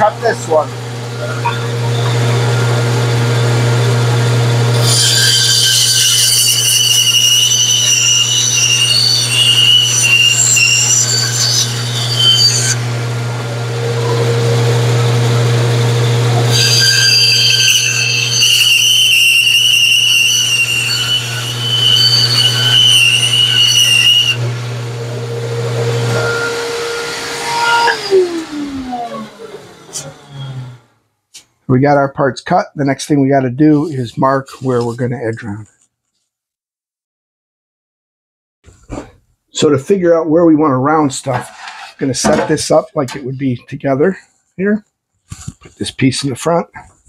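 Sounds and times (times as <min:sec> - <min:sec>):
band saw humming: 0:00.0 - 0:30.9
saw blade squealing through wood: 0:04.7 - 0:12.8, 0:16.4 - 0:24.5, 0:26.0 - 0:30.8.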